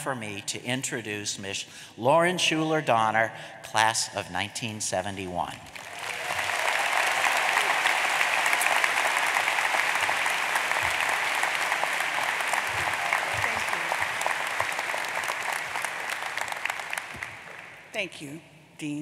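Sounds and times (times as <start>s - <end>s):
audience applauding: 5.7s - 17.9s.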